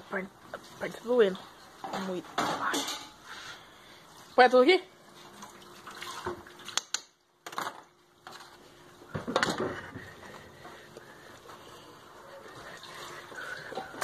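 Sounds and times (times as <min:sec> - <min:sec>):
kitchenware clinking: 0:01.8 - 0:03.2.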